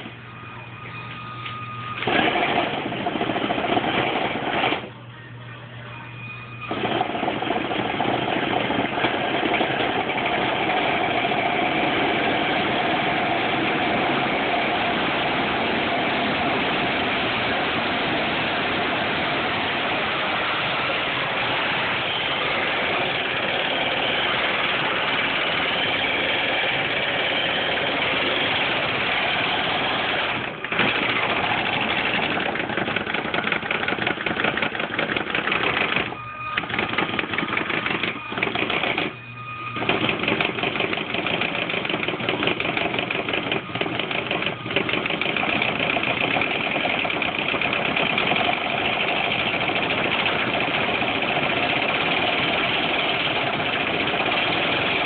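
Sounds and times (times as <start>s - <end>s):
wobbling rollers vibrating: 6.1s - 55.0s
rc car tyres spinning rollers: 6.7s - 39.1s.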